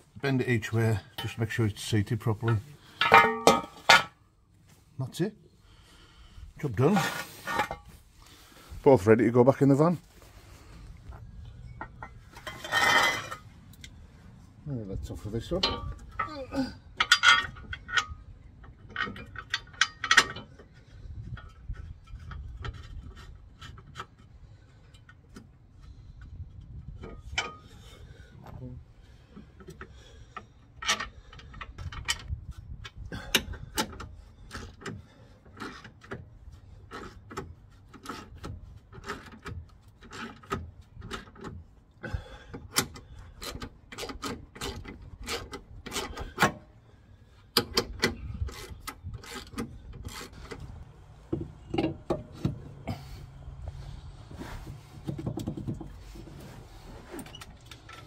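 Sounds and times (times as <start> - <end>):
metallic clicks and knocks: 17.0 - 20.8, 47.5 - 52.9, 55.0 - 56.0.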